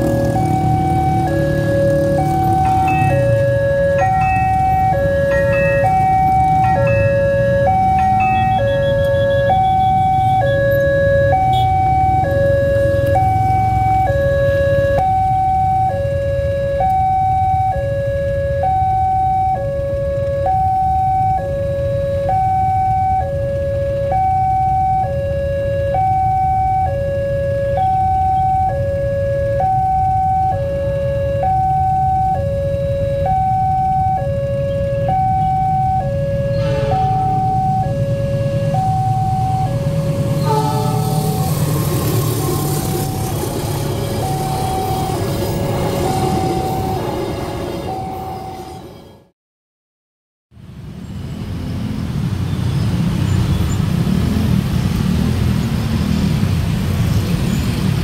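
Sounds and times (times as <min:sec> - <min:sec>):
motorcycles idling: 0:00.0 - 0:14.2, 0:37.2 - 0:46.9
two-tone crossing alarm: 0:00.0 - 0:49.3.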